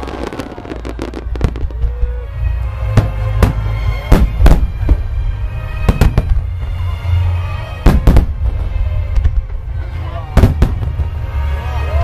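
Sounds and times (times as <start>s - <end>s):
firework bangs: 0.0s - 2.2s, 2.8s - 5.2s, 5.8s - 6.5s, 7.8s - 9.5s, 10.3s - 11.1s.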